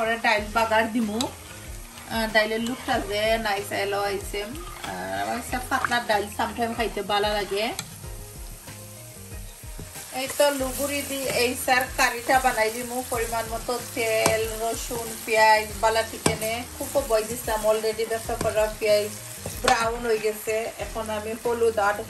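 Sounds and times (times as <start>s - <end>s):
onions sizzling in a pan: 0.0s - 22.0s.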